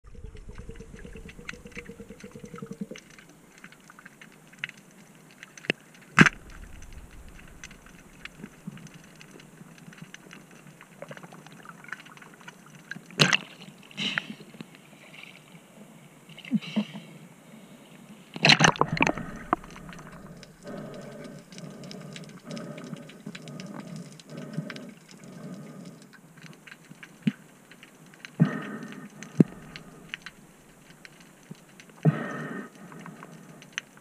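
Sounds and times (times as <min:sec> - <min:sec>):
water sloshing on microphone: 0:00.0 - 0:04.6, 0:06.2 - 0:12.7, 0:18.5 - 0:22.3
faint underwater crackling clicks: 0:00.3 - 0:15.3, 0:18.4 - 0:34.0.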